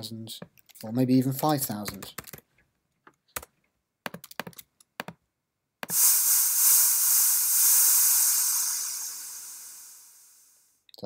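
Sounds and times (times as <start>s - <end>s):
keyboard and mouse clicks: 0.4s - 5.2s
white noise: 5.9s - 10.7s.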